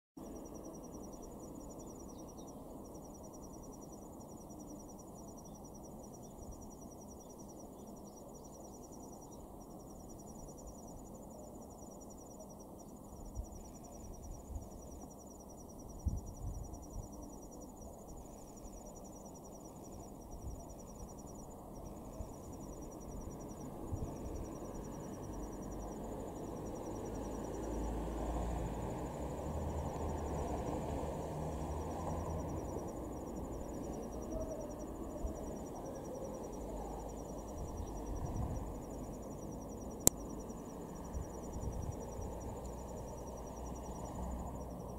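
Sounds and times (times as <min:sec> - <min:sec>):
insects trilling: 0:00.2 - 0:44.9
low outdoor rumble: 0:10.6 - 0:44.9.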